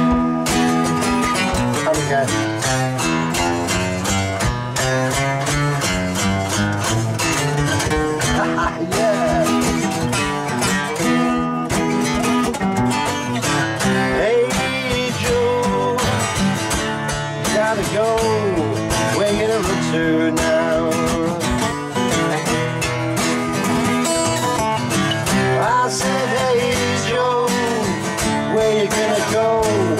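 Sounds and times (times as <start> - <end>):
man singing: 0.0 - 3.1, 8.1 - 11.1, 13.4 - 23.0, 25.2 - 29.9
acoustic guitars strumming: 0.0 - 29.9.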